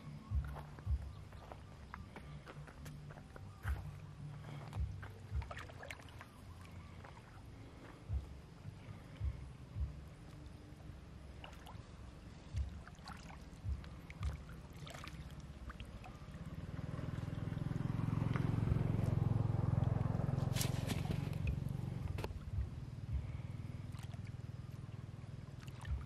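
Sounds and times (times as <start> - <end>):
low rumble: 0.0 - 26.0
water sloshing and splashing: 4.5 - 8.1, 11.3 - 18.9, 23.9 - 24.3, 25.5 - 26.0.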